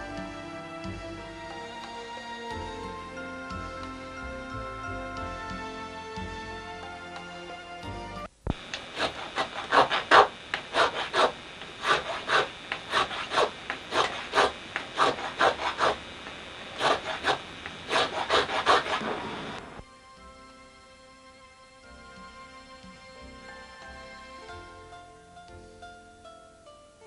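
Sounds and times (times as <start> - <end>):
soft music: 0.0 - 8.4, 19.8 - 27.0
chisel scraping wood: 8.9 - 16.0, 16.8 - 19.2.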